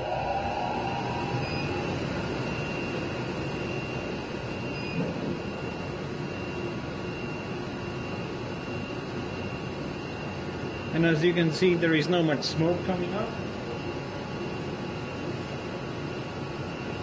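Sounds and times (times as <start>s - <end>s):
faint high tone: 0.0s - 2.9s
laser cutter machinery hum: 0.0s - 17.0s.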